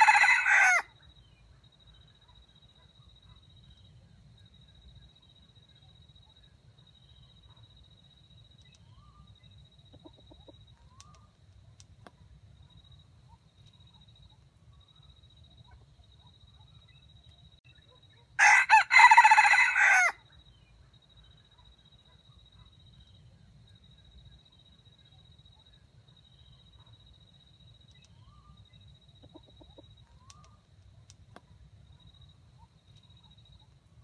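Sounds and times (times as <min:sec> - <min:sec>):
rooster crowing: 0:00.0 - 0:00.9, 0:18.4 - 0:20.2.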